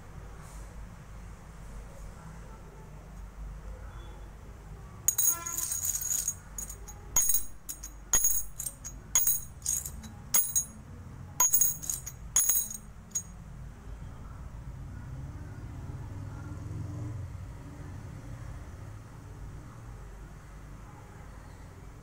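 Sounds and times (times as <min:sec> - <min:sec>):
metal coins clinking: 0:05.1 - 0:10.8, 0:11.4 - 0:13.3.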